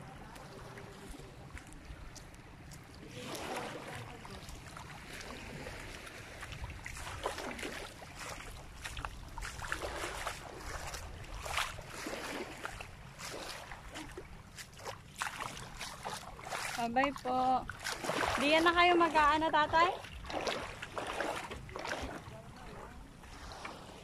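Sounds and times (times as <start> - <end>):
wind rumble on microphone: 0.0 - 14.5
shallow water lapping and splashing: 0.0 - 24.0.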